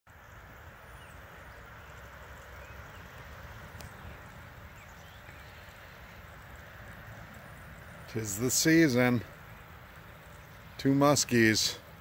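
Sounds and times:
faint bird chirps: 0.1s - 8.1s
light rain falling on water: 0.1s - 12.0s.

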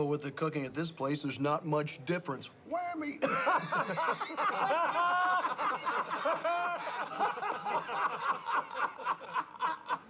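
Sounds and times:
men laughing: 3.2s - 10.0s.

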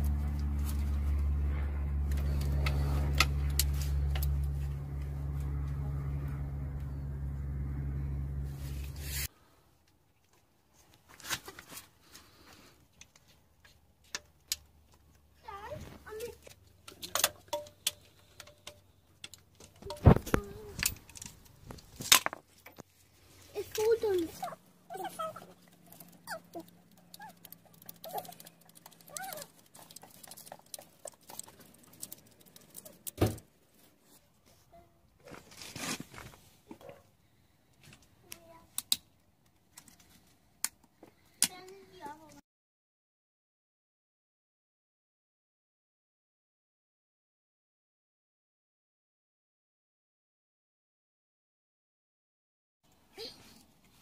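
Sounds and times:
low mechanical hum: 0.0s - 9.3s.

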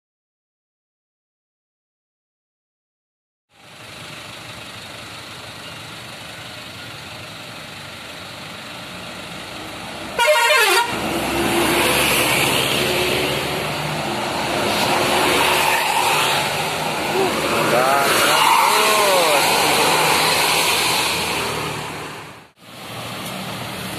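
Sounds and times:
diesel engine running: 3.5s - 23.9s
traffic hum of idling vehicles: 3.5s - 23.9s
loud horn blast: 10.2s - 11.1s.

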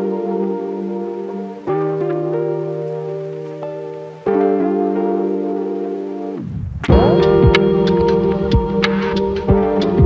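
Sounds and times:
electronic music with thudding beat: 6.4s - 10.0s.

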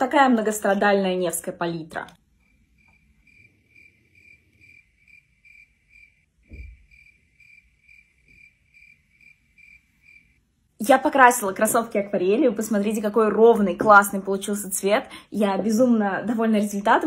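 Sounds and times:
cricket chirping: 2.4s - 10.4s
soft low thump: 6.4s - 6.9s.

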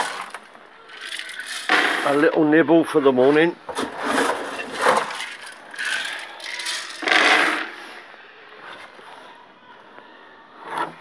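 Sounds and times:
dry feed rattling in a bucket: 0.0s - 2.4s, 3.8s - 7.8s.

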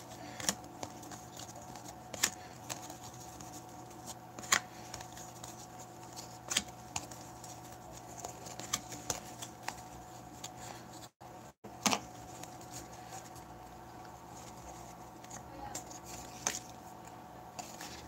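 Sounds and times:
faint steady hum: 0.0s - 18.0s
cards sliding and snapping: 0.1s - 10.9s.

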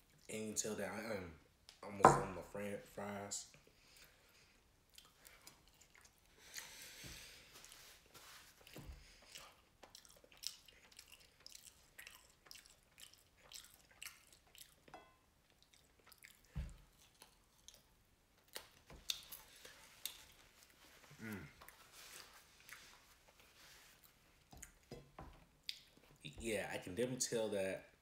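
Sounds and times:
person chewing fries: 3.8s - 24.9s, 25.6s - 26.2s
person humming: 21.2s - 21.6s.

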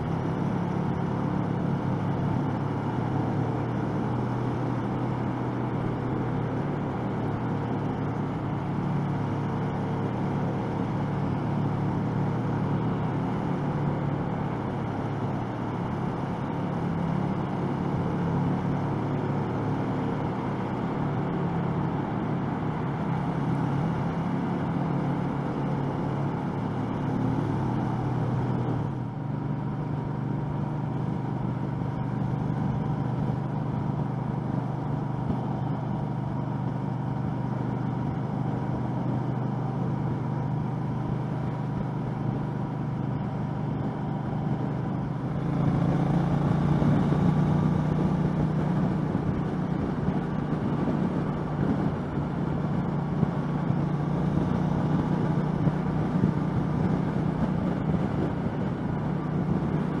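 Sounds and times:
road noise: 0.0s - 60.0s
wind noise: 45.5s - 60.0s.

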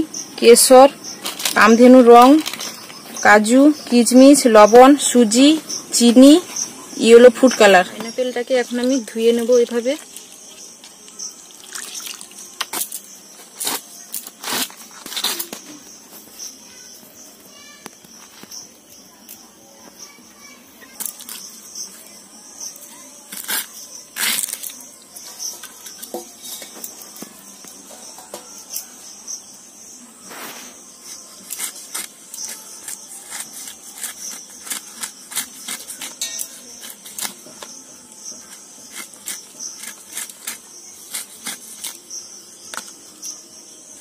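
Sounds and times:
crickets chirping: 0.0s - 44.0s
knife cutting pineapple rind: 23.2s - 25.0s, 31.0s - 37.8s, 38.4s - 42.1s.

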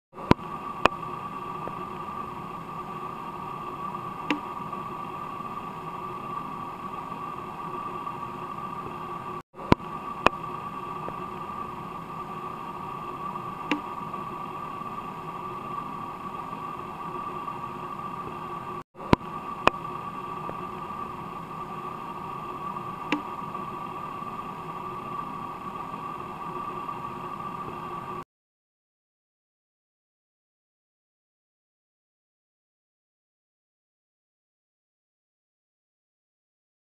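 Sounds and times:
mechanical hum with hiss: 0.2s - 28.2s.

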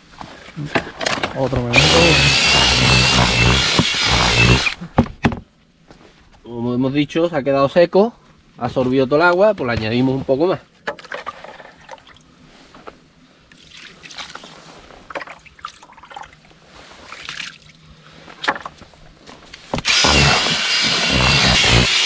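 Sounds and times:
loud whirring with low rumble: 1.5s - 4.8s, 19.8s - 22.0s
rustling and scraping by hand: 8.4s - 10.5s, 12.4s - 13.1s, 14.3s - 15.3s, 16.5s - 17.3s, 18.1s - 22.0s.

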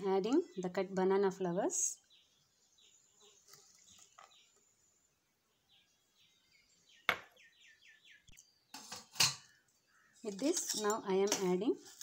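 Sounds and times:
faint bird chirps: 1.9s - 10.4s.

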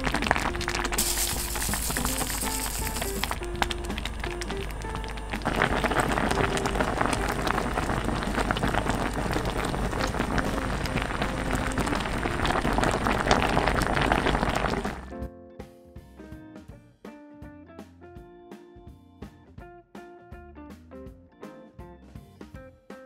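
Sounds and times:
food bubbling and sizzling in pot: 0.0s - 15.1s.

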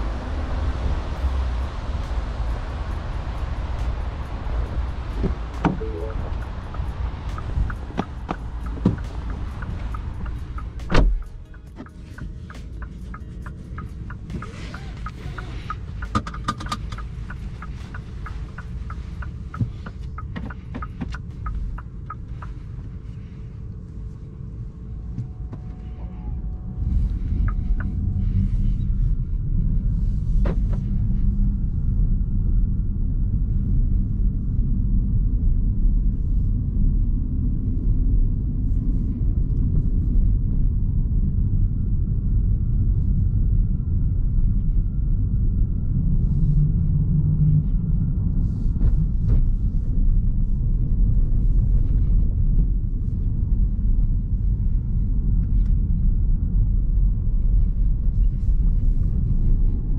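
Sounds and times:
car road and drivetrain rumble: 0.0s - 59.9s
quick regular ticks: 6.4s - 22.6s.

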